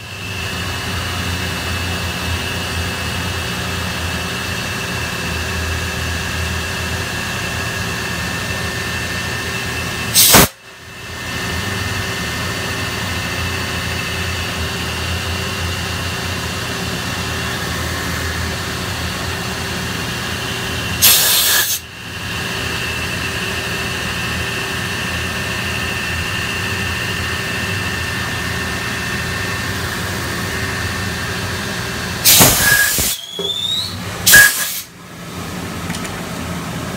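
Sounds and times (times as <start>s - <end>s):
milling machine whine: 0.0s - 36.9s
rising whine: 10.8s - 21.1s, 21.8s - 36.9s.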